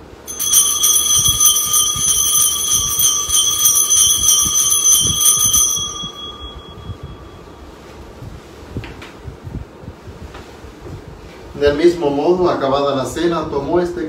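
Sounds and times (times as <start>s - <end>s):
altar bells jingling: 0.0s - 7.7s.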